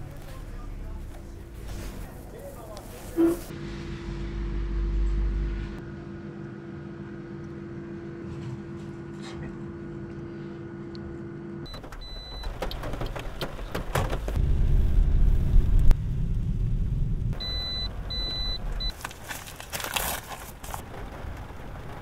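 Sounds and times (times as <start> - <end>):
car mechanical hum: 0.0 - 22.0.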